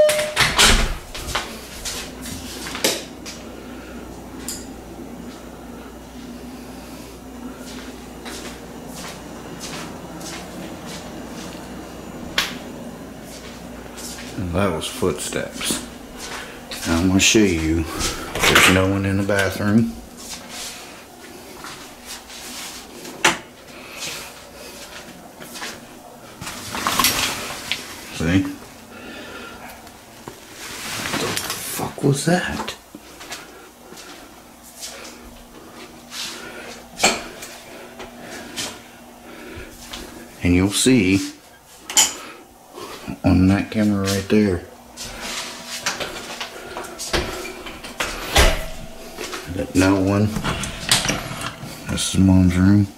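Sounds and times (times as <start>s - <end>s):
door opening with clicks: 0.0s - 1.0s, 50.3s - 51.7s
door and curtain handling rustles: 47.0s - 52.0s.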